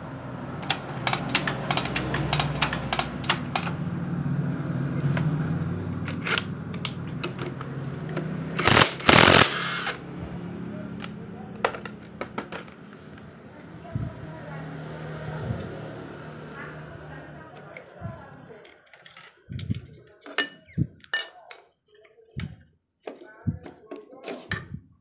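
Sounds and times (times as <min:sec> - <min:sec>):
metal tools clinking on engine: 0:00.6 - 0:03.8, 0:06.0 - 0:09.4, 0:16.6 - 0:22.2.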